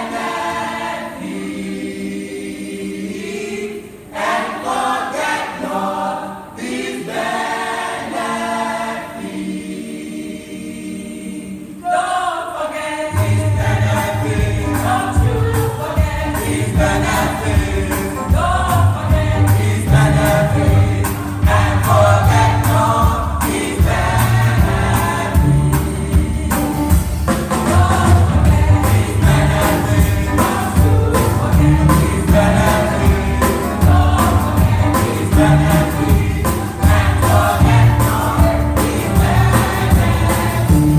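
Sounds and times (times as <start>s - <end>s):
gospel choir singing: 0.0s - 40.9s
band with heavy bass and beat: 13.2s - 40.9s.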